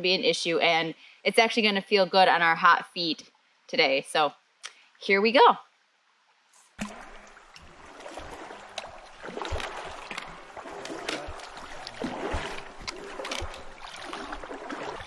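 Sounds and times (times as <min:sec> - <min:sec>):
feet and poles splashing in water: 0:06.7 - 0:15.0
river current rushing: 0:06.8 - 0:15.0.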